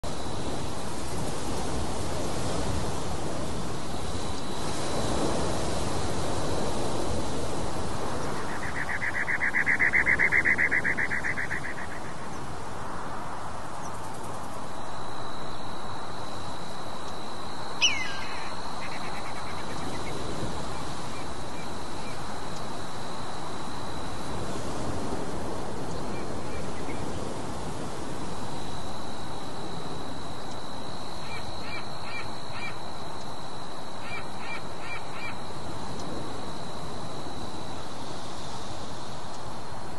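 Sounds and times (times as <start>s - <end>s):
sharp bird call: 17.8s - 19.7s.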